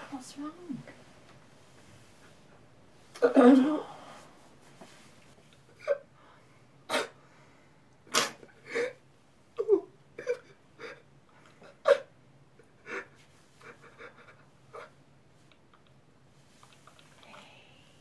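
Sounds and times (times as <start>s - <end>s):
person sobbing: 3.2s - 4.0s, 8.6s - 9.0s, 9.6s - 12.1s, 12.7s - 15.0s.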